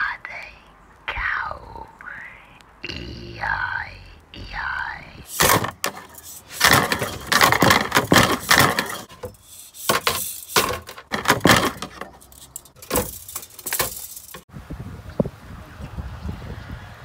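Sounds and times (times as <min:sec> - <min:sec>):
hard objects clattering and rattling: 0:05.3 - 0:14.4
wood and metal knocking: 0:05.3 - 0:14.4.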